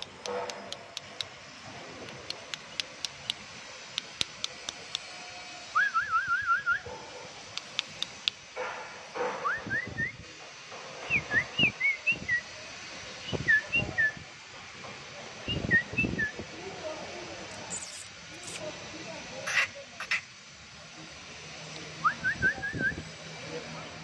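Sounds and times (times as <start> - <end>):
bird whistling liquid notes: 11.0 - 12.4, 15.4 - 16.3.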